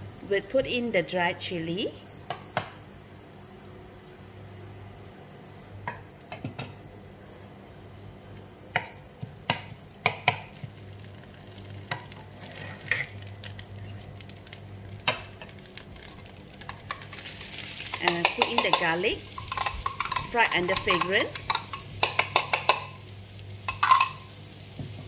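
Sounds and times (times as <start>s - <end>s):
chillies sizzling in oil: 0.0s - 25.0s
wooden spatula knocking pan: 18.1s - 23.0s.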